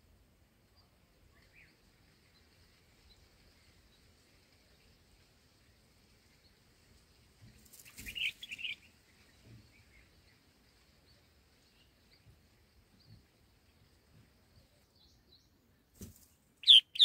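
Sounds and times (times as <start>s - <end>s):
faint outdoor background: 0.0s - 17.0s
brief rustle: 16.0s - 16.4s
high bird chirps: 16.6s - 17.0s.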